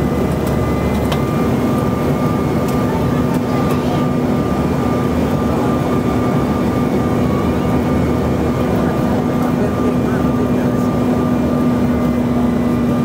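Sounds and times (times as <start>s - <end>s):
engine and airflow rush: 0.0s - 13.0s.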